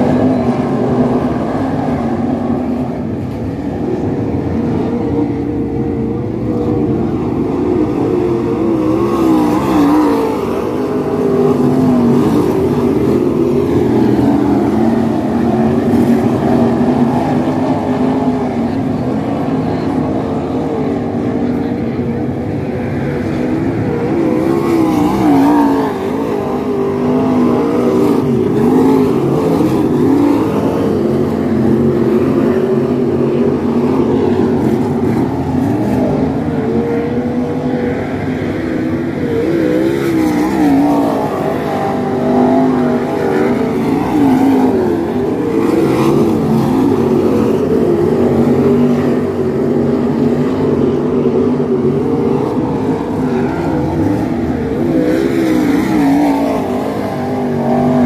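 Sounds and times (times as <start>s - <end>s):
racing car engines at high revs: 0.0s - 58.0s.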